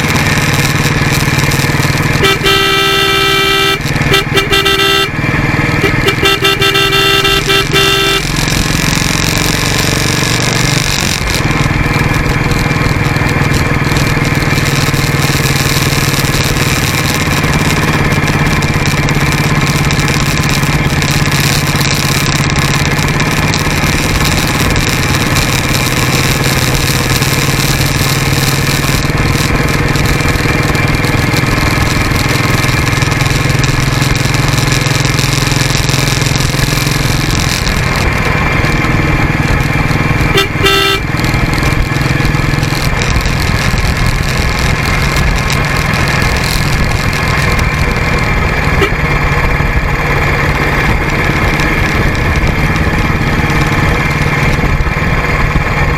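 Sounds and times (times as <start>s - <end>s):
motorcycle engine running: 0.0s - 55.9s
wind and road noise: 0.0s - 55.9s
horn sounding: 1.6s - 9.5s, 40.1s - 41.3s, 48.4s - 49.1s.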